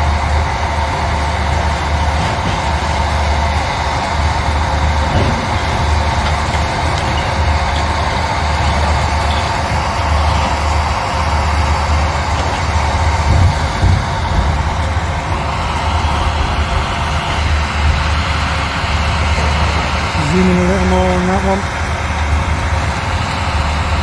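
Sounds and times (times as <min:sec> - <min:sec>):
excavator diesel engine and hydraulics: 0:00.0 - 0:24.0
low thumps: 0:12.3 - 0:15.4.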